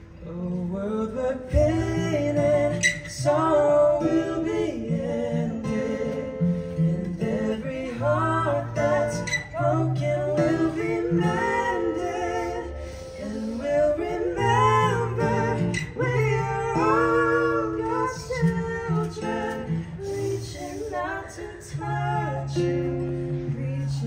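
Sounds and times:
acoustic guitar: 0.0 - 24.0
man singing: 0.1 - 24.0
woman singing: 7.0 - 24.0.

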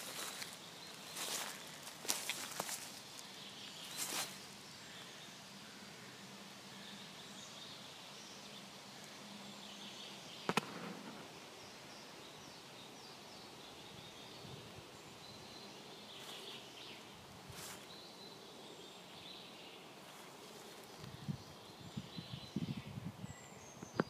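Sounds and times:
soft rustles: 0.0 - 4.4, 17.5 - 17.9
faint birdsong: 0.0 - 24.0
sharp click: 10.5 - 11.0.

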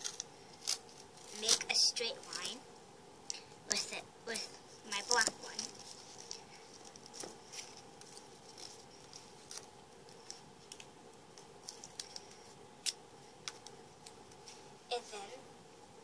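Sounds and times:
tape and paper clicks and crinkles: 0.0 - 2.6, 4.3 - 14.6
faint steady hum: 0.0 - 16.0.

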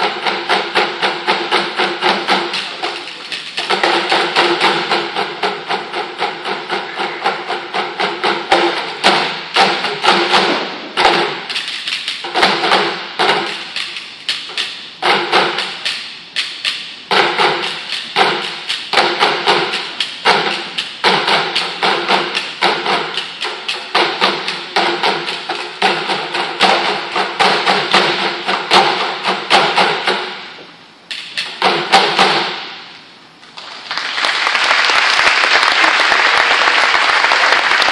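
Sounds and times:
sticks beating buckets and pipes: 0.0 - 32.8
audience applause: 33.6 - 37.9.

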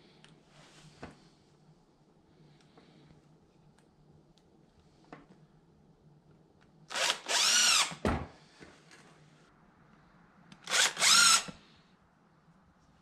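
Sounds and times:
impact driver motor whine: 6.9 - 8.0, 10.7 - 11.5.

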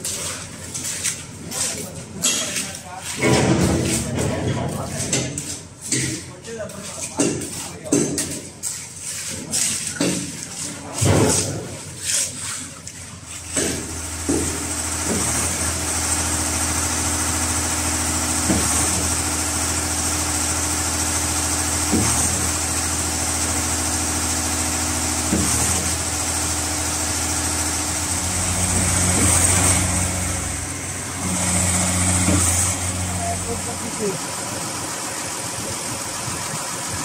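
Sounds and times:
diesel truck engine running: 13.4 - 37.0.

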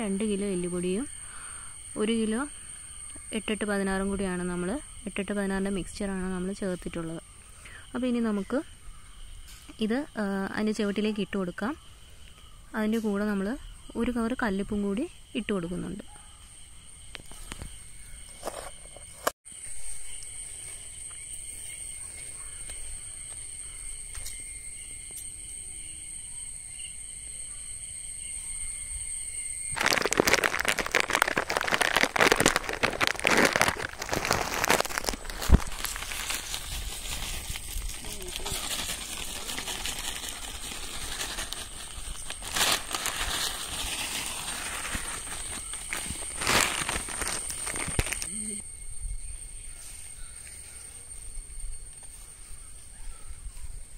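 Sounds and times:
insects chorus: 0.0 - 53.9
granules pouring onto soil: 29.7 - 48.4.

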